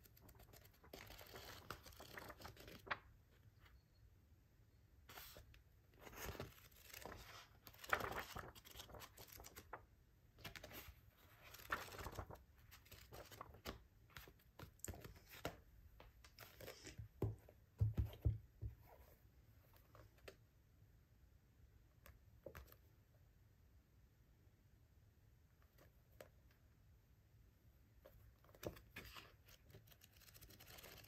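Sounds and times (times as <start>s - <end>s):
book pages riffling: 0.1s - 3.0s, 5.1s - 9.8s, 10.4s - 15.6s, 28.5s - 31.0s.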